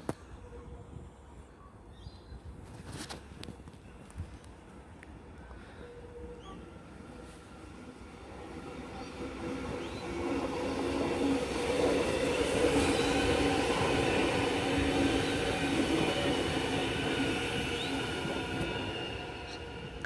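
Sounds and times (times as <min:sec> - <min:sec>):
train wheels on rails: 0:06.5 - 0:20.0.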